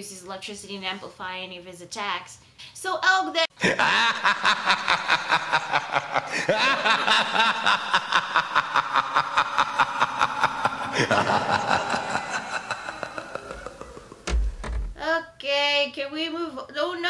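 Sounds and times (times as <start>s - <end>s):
maniacal laugh: 3.6s - 14.6s.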